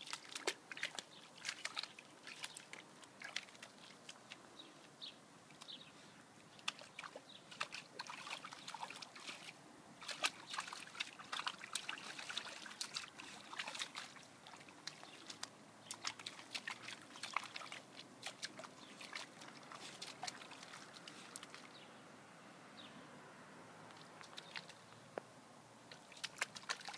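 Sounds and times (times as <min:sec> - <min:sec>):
dog digging in sandy soil: 0:06.6 - 0:21.8.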